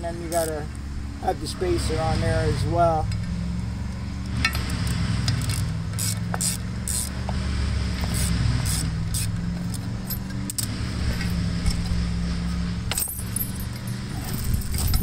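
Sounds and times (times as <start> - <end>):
chain links clinking: 0.2 - 0.7, 9.6 - 11.9, 12.9 - 15.0
screwdriver scraping metal: 4.5 - 7.2, 8.0 - 11.9.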